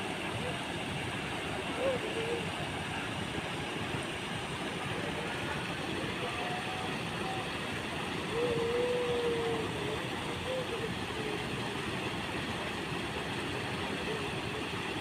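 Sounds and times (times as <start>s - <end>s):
waterfall pouring into pond: 8.9s - 15.0s.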